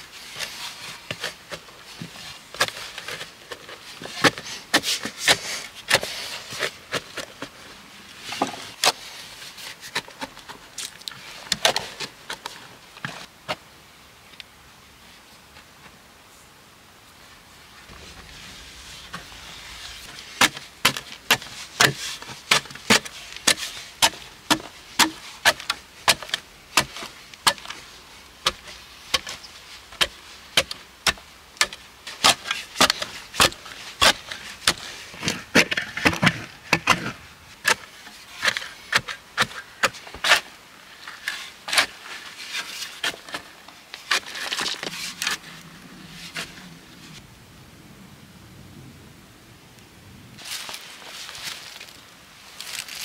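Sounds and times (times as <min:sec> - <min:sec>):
clods crumbling and sliding: 0:50.4 - 0:53.0.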